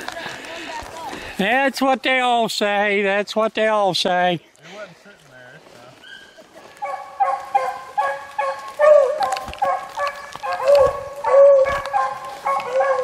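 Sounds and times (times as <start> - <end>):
beagles baying: 6.0 - 13.0.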